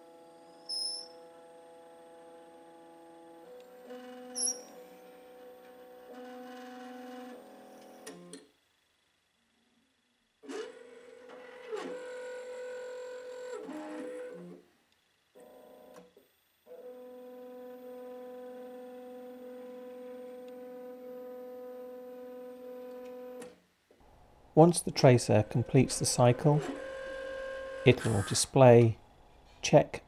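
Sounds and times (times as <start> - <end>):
motor whine: 24.1 - 29.3.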